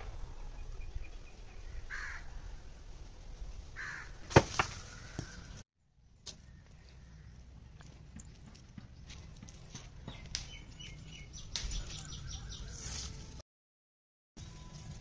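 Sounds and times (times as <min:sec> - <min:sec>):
crow cawing: 0:01.9 - 0:02.3, 0:03.8 - 0:04.2.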